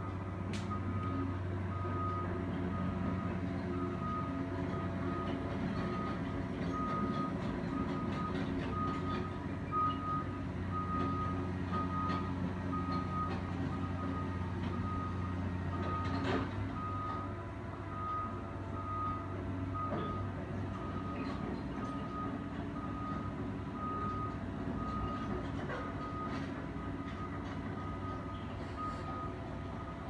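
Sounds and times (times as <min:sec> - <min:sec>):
excavator diesel engine running: 0:00.0 - 0:30.0
back-up alarm beeping: 0:25.9 - 0:30.0.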